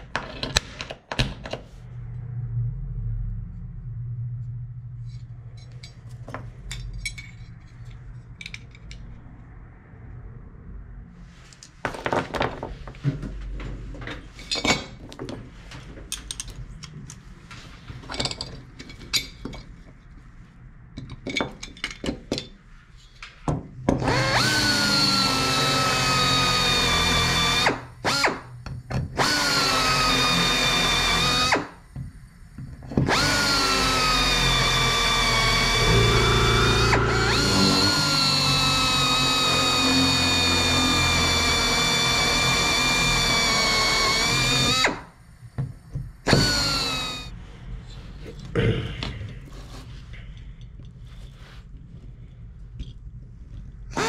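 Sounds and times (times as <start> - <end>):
aluminum parts clinking: 5.6 - 9.1
power drill drilling: 24.0 - 28.5, 29.2 - 31.8, 33.1 - 45.1, 46.3 - 47.3.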